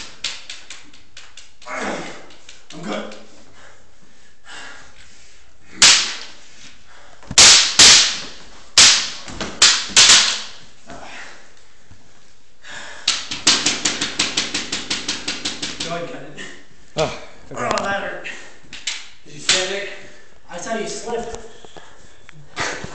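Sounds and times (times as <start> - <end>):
wooden practice swords clacking: 0.0 - 3.3, 5.8 - 6.4, 7.4 - 10.6, 13.0 - 16.0, 18.7 - 19.8.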